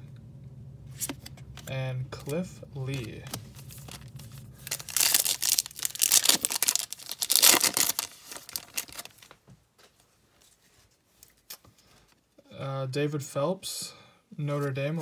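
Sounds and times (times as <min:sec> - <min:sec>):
foil wrapper tearing and crinkling: 0:02.9 - 0:09.3
soft rustles: 0:08.0 - 0:12.3.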